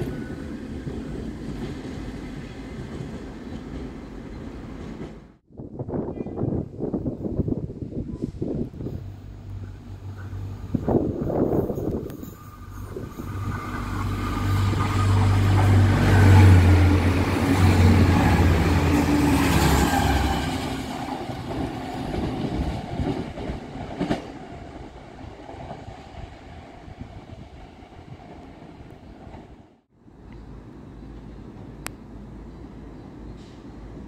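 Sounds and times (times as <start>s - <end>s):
diesel train engine drone: 7.6s - 34.0s.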